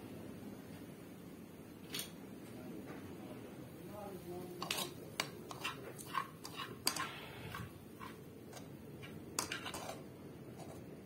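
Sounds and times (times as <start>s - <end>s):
metal spoon scraping frying pan: 4.6s - 10.9s.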